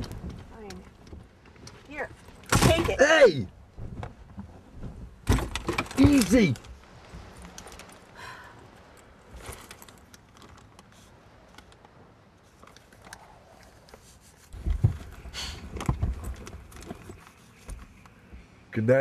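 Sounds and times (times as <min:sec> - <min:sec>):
rustling: 0:03.7 - 0:18.5.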